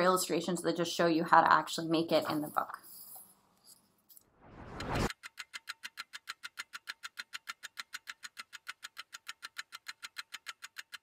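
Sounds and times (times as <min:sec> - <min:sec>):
rising whoosh: 0:04.3 - 0:05.1
rapid ratchet-like ticking: 0:05.1 - 0:11.0.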